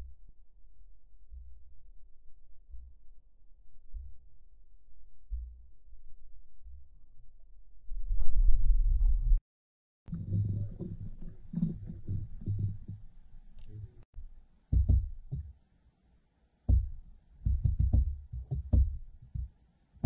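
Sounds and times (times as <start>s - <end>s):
muffled underwater thumps: 10.1s - 14.0s, 14.7s - 15.5s, 16.7s - 19.5s.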